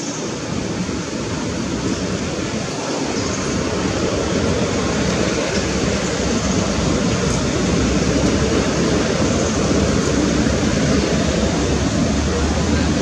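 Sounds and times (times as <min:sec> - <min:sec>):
loud rushing noise: 0:00.0 - 0:13.0.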